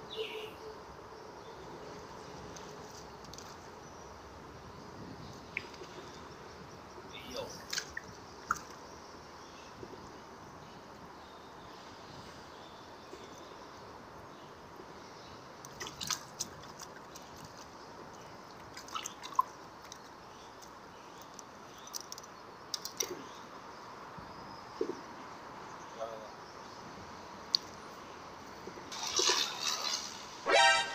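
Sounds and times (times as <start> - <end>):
steady background hiss: 0.0 - 30.9
water dripping and splashing: 5.3 - 6.4, 7.3 - 9.0, 15.6 - 23.2, 28.6 - 30.4.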